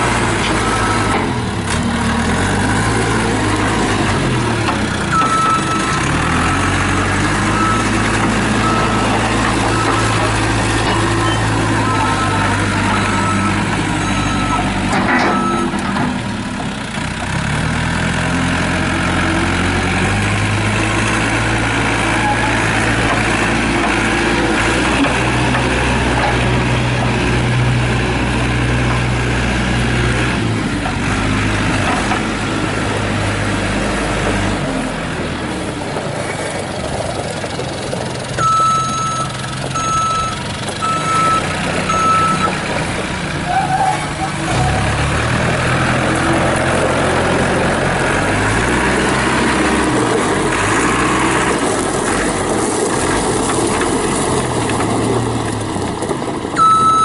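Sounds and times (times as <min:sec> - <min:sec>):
diesel engine revving: 0:00.0 - 0:57.0
reversing alarm beeps: 0:05.2 - 0:06.4, 0:08.6 - 0:09.1, 0:09.7 - 0:10.2, 0:10.9 - 0:15.8, 0:38.4 - 0:42.6, 0:56.6 - 0:57.0.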